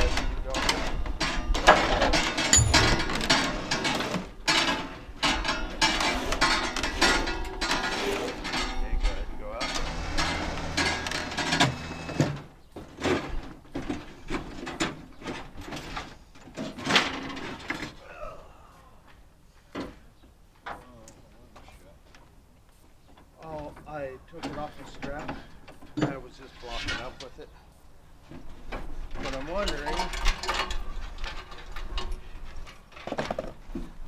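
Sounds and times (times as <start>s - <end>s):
hand tools clanking on metal: 0.1s - 12.3s.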